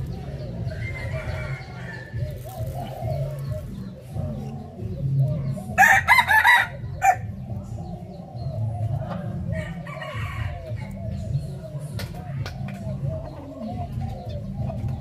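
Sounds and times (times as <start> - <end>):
chickens clucking: 0.0 - 15.0
rooster crowing: 0.7 - 2.1, 5.8 - 7.2.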